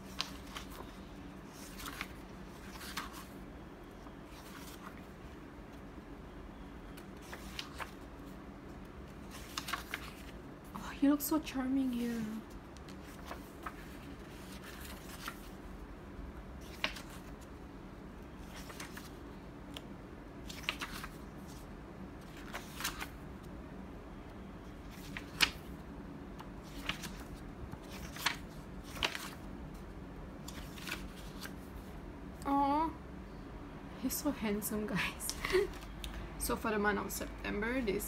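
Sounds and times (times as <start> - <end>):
paper pages rustling: 0.0 - 3.4, 4.2 - 5.2, 7.0 - 10.4, 12.4 - 15.7, 16.6 - 17.5, 18.4 - 19.8, 20.4 - 23.2, 24.8 - 25.8, 26.4 - 29.8, 30.4 - 31.9.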